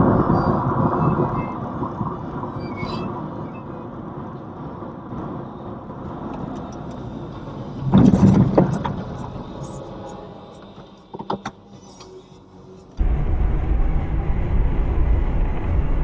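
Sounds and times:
loud rough burst of noise: 0:13.0 - 0:16.0.

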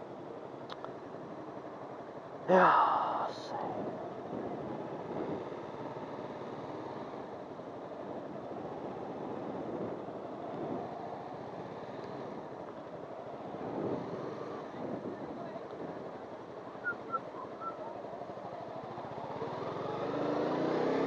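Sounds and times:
wind rush on helmet microphone: 0:03.5 - 0:20.0.

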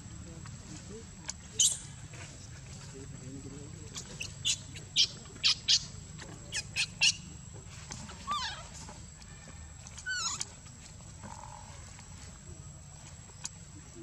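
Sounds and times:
baby monkey squeaking: 0:01.6 - 0:02.0, 0:04.0 - 0:07.3, 0:08.1 - 0:08.8, 0:10.0 - 0:10.6
baby monkey wavering cry: 0:08.2 - 0:08.7, 0:10.0 - 0:10.4.

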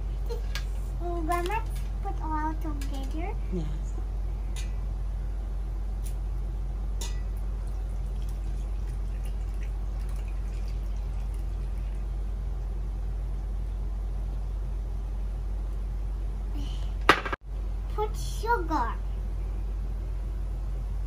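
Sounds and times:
steady low hum: 0:00.0 - 0:21.0
milk trickling into bowl: 0:07.7 - 0:12.2.

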